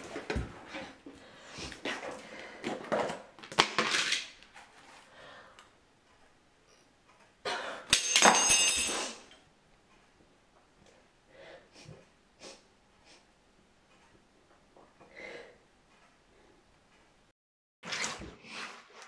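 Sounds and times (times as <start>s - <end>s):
tub clattering on tiled floor: 1.9s - 4.7s, 7.9s - 9.1s.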